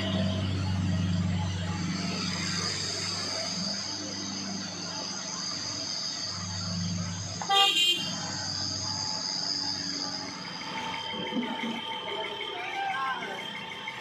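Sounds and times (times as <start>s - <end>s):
truck passing close by: 0.0s - 12.5s
cars running: 0.0s - 14.0s
vehicle horn toot: 7.4s - 8.3s.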